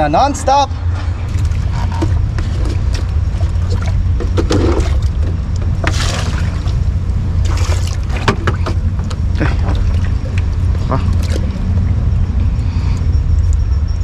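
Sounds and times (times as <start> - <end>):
steady low rumble: 0.0 - 14.0
water splashes: 1.3 - 12.1.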